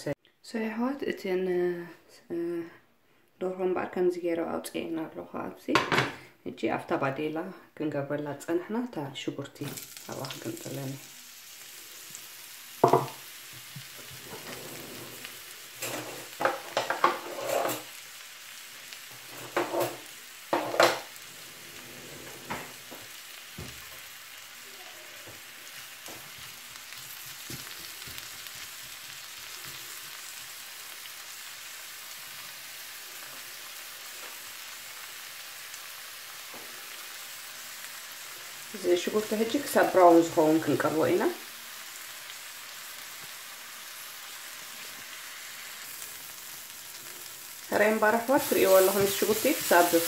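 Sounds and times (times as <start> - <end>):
onions sizzling in oil: 9.2 - 50.0
metal knocking and scraping pan: 15.8 - 17.9, 19.3 - 21.1.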